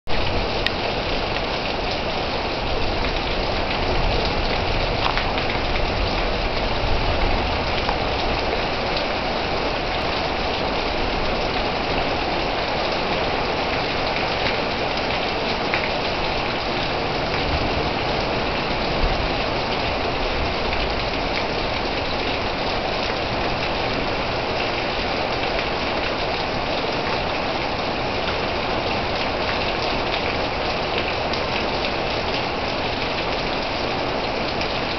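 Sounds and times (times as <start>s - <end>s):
heavy rain: 0.1s - 34.9s.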